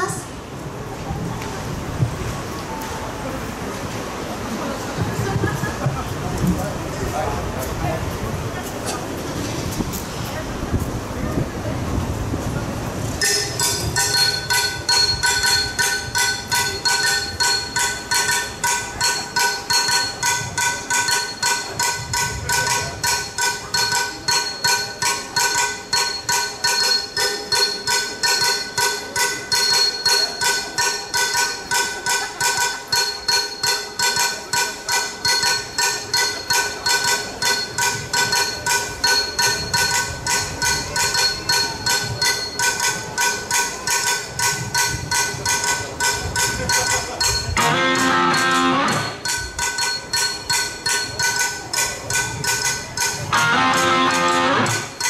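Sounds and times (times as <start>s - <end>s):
rhythmic metallic striking: 13.1s - 55.0s
high ringing tones: 13.2s - 55.0s.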